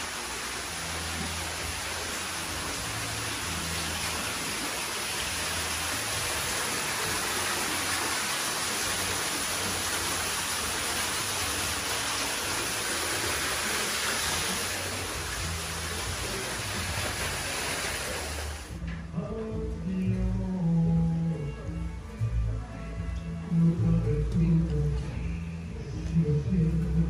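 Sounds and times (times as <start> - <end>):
water rushing down rock waterfall: 0.0 - 18.8.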